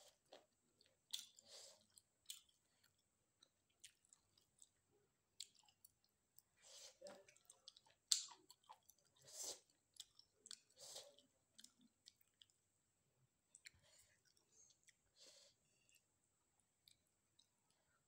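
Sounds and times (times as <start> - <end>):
person chewing crunchy food: 0.0 - 4.8, 5.4 - 12.6.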